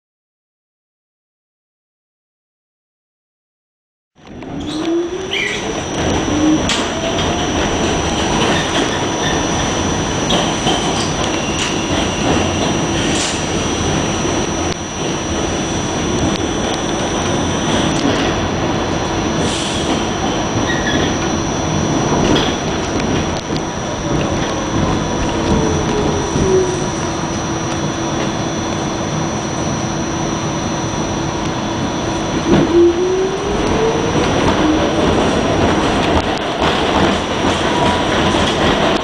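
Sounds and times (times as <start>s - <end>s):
traction motors whining: 4.3s - 18.6s, 19.3s - 38.3s
high wheel squeals: 19.5s - 22.7s.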